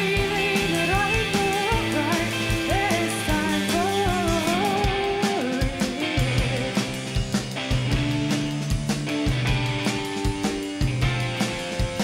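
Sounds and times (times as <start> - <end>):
woman singing: 0.0 - 7.1
bass guitar: 0.0 - 12.0
drum beat: 0.0 - 12.0
electric guitar: 0.0 - 12.0.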